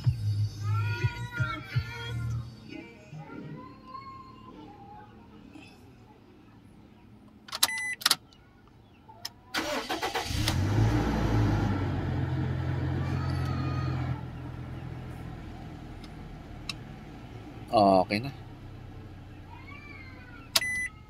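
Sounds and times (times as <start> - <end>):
car engine starting and idling: 9.5 - 21.0.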